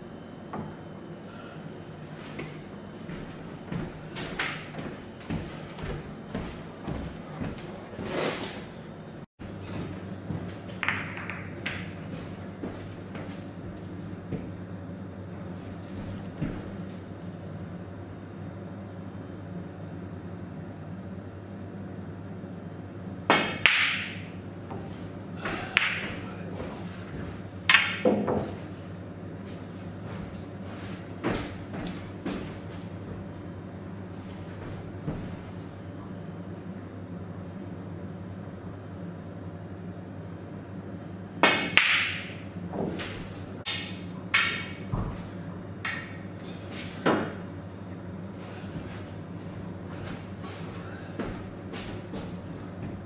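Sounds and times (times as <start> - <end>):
steady low hum: 0.0 - 53.0
snooker balls clacking: 10.7 - 12.0, 23.3 - 26.4, 27.7 - 28.6, 41.4 - 45.1
cue striking ball: 10.8 - 12.0, 23.3 - 24.4, 27.7 - 28.6, 41.4 - 42.9, 43.7 - 44.8.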